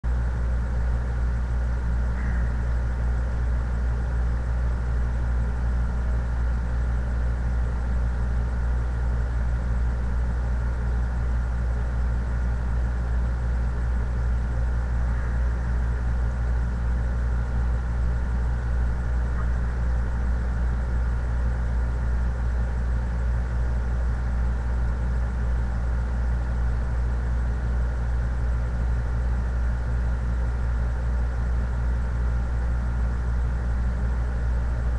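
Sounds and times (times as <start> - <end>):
steady low hum: 0.0 - 34.9
thin high whine: 2.1 - 3.1, 14.2 - 18.2.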